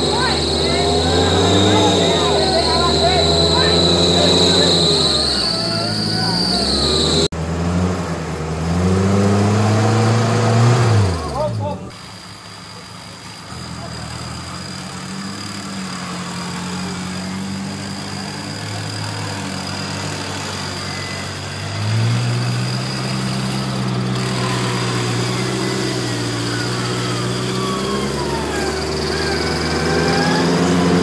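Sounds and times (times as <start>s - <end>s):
high-pitched whine: 0.0s - 7.3s, 18.2s - 31.0s
off-road vehicle engine revving: 0.0s - 31.0s.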